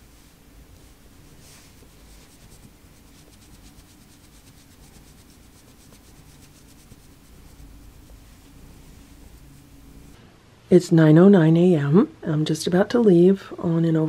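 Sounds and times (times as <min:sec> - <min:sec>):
fingers scratching cat fur: 0:00.1 - 0:10.2.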